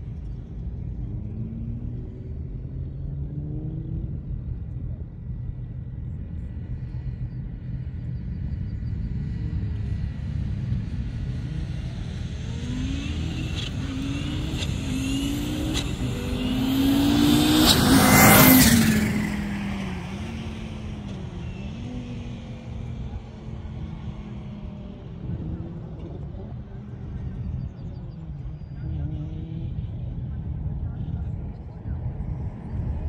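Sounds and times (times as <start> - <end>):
car accelerating hard: 9.7 - 33.0.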